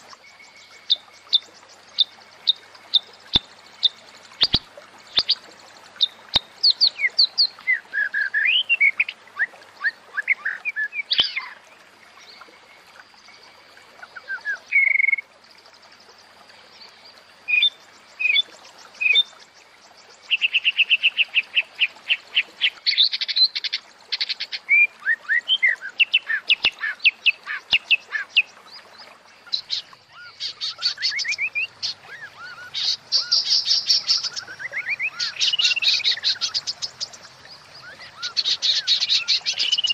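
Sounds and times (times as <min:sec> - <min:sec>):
bird whistling chirping and trilling: 0:06.0 - 0:11.6, 0:14.0 - 0:15.2, 0:29.5 - 0:37.2, 0:37.8 - 0:39.9.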